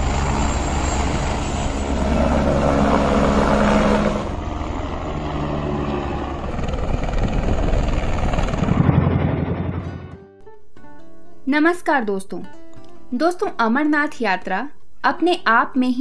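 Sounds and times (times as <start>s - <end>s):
helicopter turbine and rotor: 0.0s - 10.2s.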